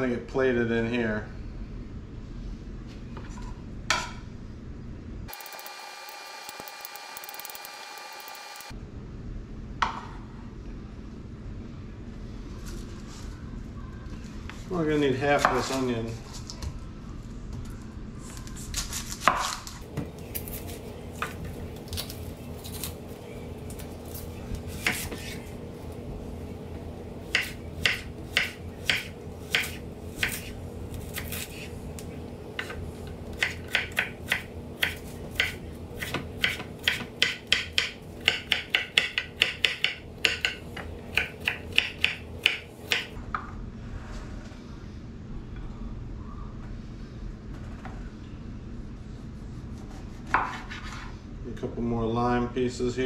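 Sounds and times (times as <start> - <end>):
knife chopping on wooden board: 24.7 - 25.4, 27.3 - 31.7, 32.6 - 43.1.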